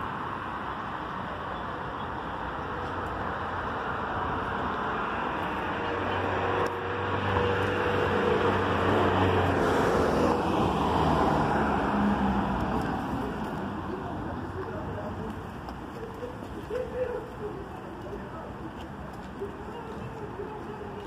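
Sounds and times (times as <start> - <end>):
background traffic: 0.0 - 21.0.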